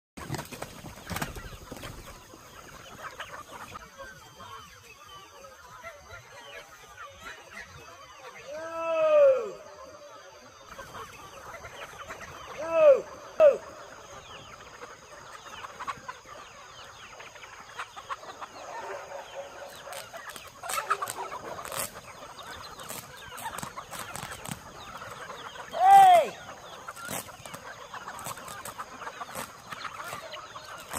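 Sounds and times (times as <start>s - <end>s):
chickens clucking: 0.2s - 30.9s
chicken squawks: 1.1s - 30.9s.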